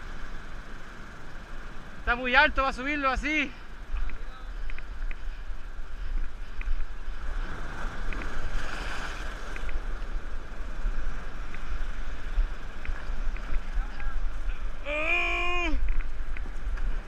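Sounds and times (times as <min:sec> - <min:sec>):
wind rumbling on microphone: 0:00.0 - 0:17.0
surf breaking on rocks: 0:07.2 - 0:10.2.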